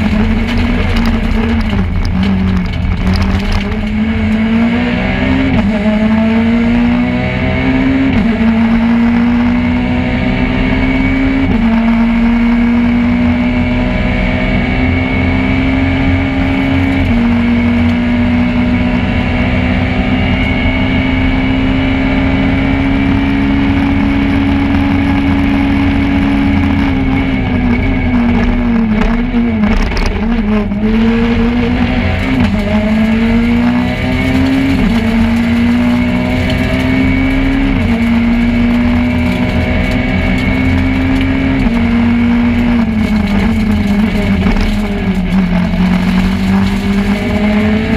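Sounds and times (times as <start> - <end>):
rally car engine at full throttle: 0.0 - 47.9.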